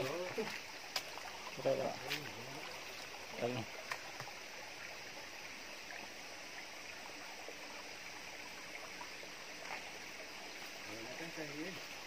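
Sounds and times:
stream rushing: 0.0s - 12.0s.

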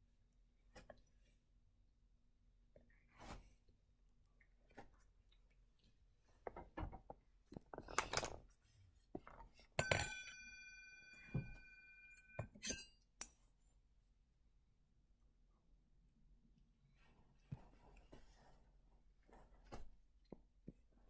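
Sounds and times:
clear ringing tone: 9.8s - 12.5s.

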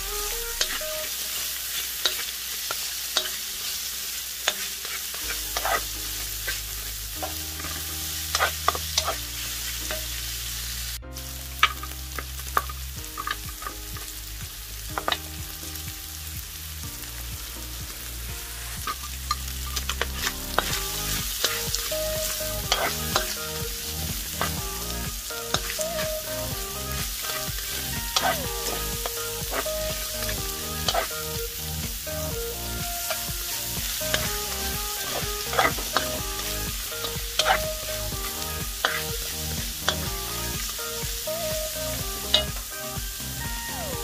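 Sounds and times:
food sizzling in hot oil: 0.0s - 44.0s
spatula scraping metal wok: 0.3s - 11.0s, 18.2s - 41.0s, 41.8s - 43.3s.

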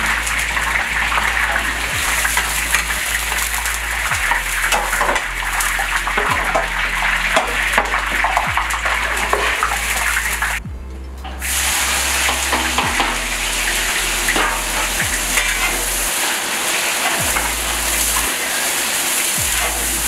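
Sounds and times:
skimmer clinking and scraping: 0.0s - 20.0s
meat sizzling in oil: 11.4s - 20.0s.

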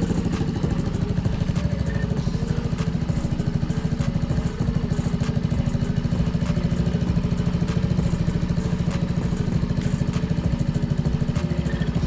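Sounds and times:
scooter engine idling: 0.0s - 12.0s.

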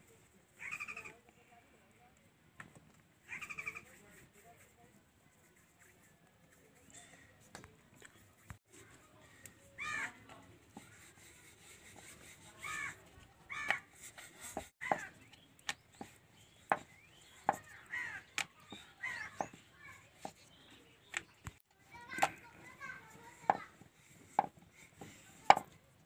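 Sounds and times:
crows cawing: 17.8s - 18.3s.

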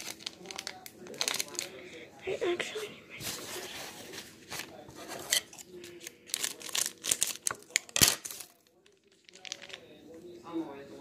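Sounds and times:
plastic rustling and crinkling: 0.0s - 1.8s, 3.2s - 9.8s.

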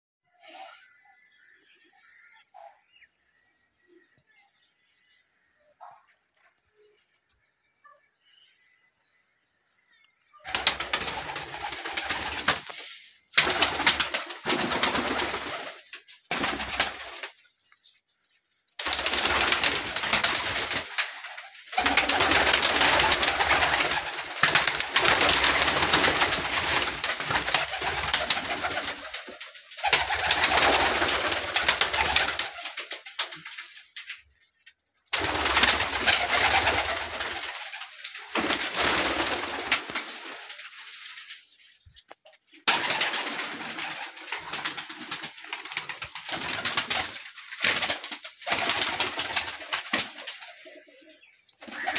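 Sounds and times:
pigeons cooing: 50.3s - 51.9s.

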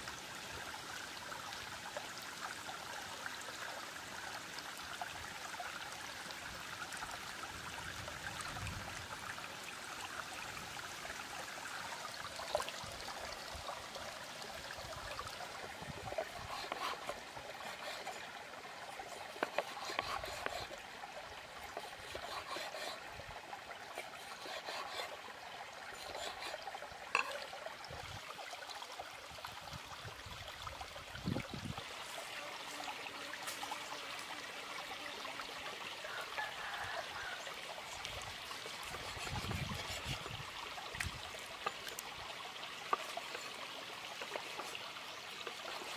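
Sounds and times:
stream water running over rocks: 0.0s - 45.9s.

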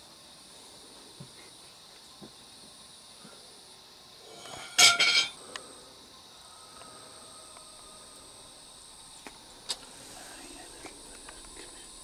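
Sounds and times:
night insects chirring: 0.0s - 12.0s
loud ringing clink: 4.5s - 5.4s.

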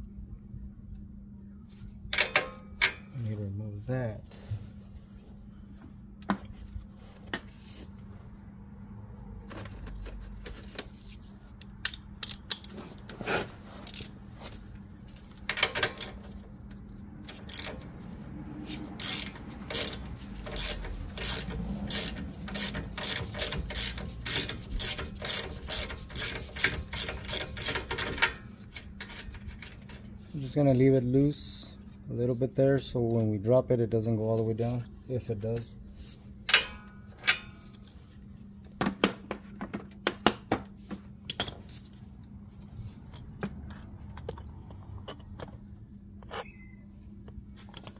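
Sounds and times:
hand ratchet clicking: 11.8s - 12.7s, 17.3s - 17.9s, 18.9s - 28.4s.

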